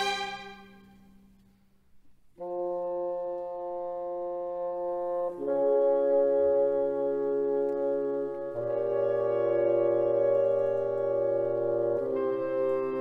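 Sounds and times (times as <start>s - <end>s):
sustained music chords: 0.0s - 1.1s.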